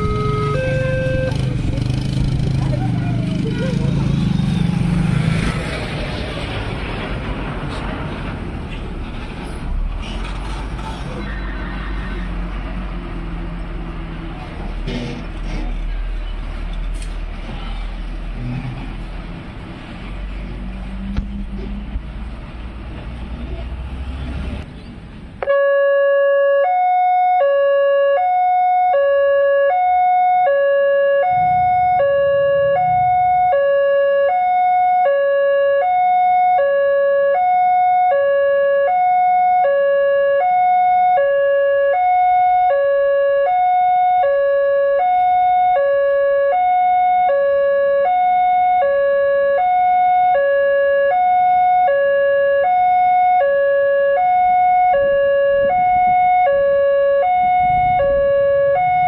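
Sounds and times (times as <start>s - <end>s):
two-tone crossing alarm: 0.0s - 1.6s, 25.4s - 59.0s.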